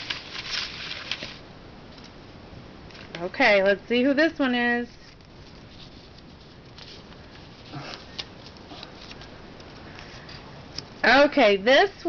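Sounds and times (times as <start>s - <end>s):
paper rustling and crinkling: 0.0s - 2.1s, 5.0s - 10.9s.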